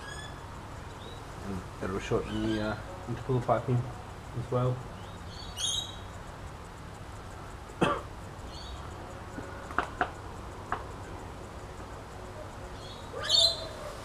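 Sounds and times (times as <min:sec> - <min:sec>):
bird chirping: 0:00.0 - 0:04.0, 0:04.6 - 0:06.3, 0:08.4 - 0:10.7, 0:12.3 - 0:14.0
steady low hum: 0:00.0 - 0:14.0.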